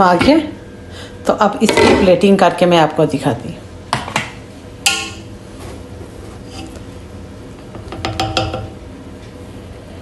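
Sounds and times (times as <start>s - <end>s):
spatula scraping metal pot: 6.4s - 6.8s.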